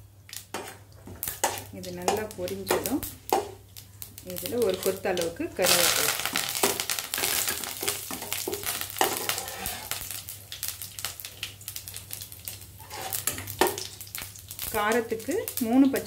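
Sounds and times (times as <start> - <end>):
food sizzling in hot oil: 0.0 - 16.0
metal spoon stirring: 6.6 - 10.0, 12.8 - 13.4.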